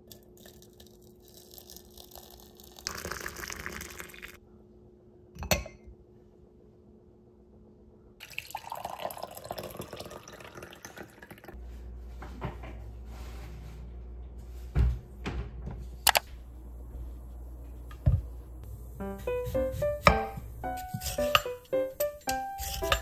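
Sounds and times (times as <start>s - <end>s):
tea pouring into a glass: 0.1s - 4.4s, 8.2s - 11.6s
steady low hum: 11.6s - 23.0s
handling knocks and clicks: 16.0s - 16.3s.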